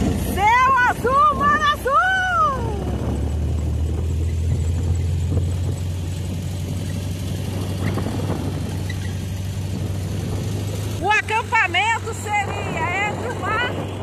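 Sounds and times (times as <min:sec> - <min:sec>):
vehicle engine and road drone: 0:00.0 - 0:14.0.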